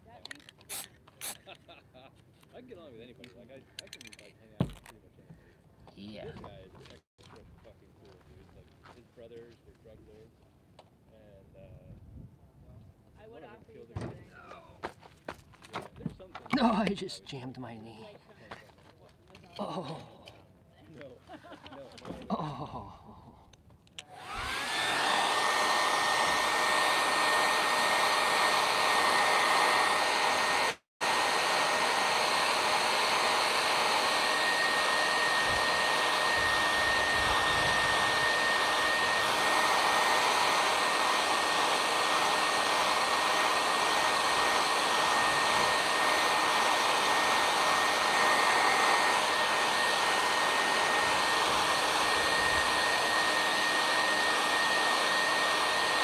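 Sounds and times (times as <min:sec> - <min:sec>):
hair dryer running: 0:24.0 - 0:56.0.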